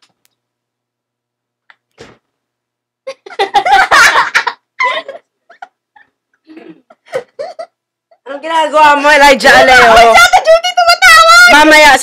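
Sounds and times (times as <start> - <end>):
girls laughing and giggling: 3.0 - 6.2, 6.9 - 8.3.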